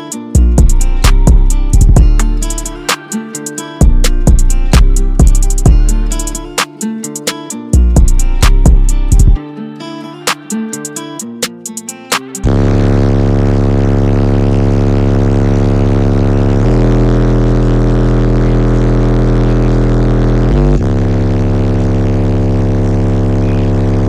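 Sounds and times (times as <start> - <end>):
loud deep bass from subwoofers: 0.4 - 2.9, 3.8 - 6.5, 7.8 - 9.4, 12.5 - 24.0.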